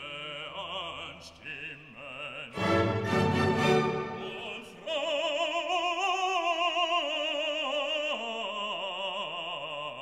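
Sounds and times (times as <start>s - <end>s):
operatic classical music: 2.5s - 5.4s.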